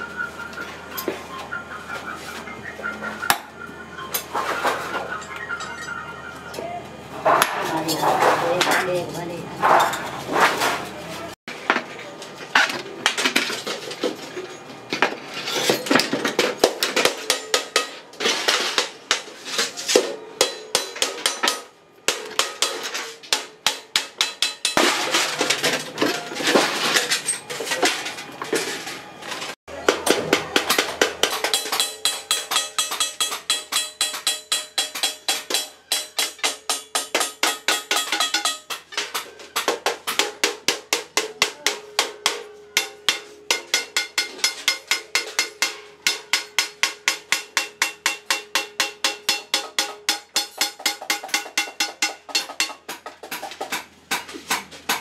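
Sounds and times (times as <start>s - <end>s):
hammer striking sheet metal: 16.6s - 19.3s, 19.9s - 27.1s, 29.7s - 55.0s.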